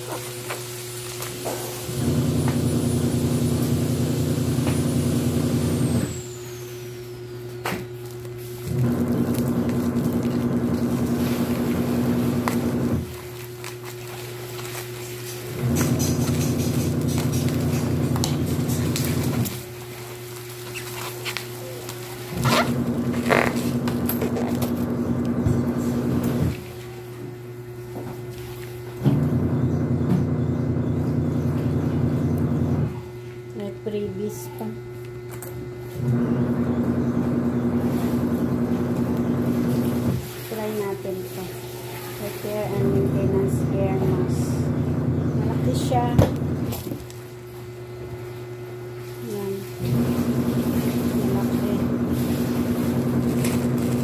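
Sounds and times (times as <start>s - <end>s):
low mechanical hum: 0.0s - 54.0s
plastic wrapping rustling: 7.4s - 26.7s, 50.0s - 54.0s.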